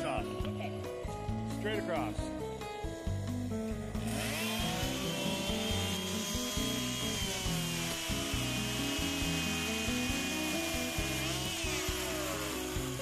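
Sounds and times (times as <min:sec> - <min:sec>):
background music with bassline: 0:00.0 - 0:13.0
chainsaw cutting wood: 0:03.9 - 0:13.0.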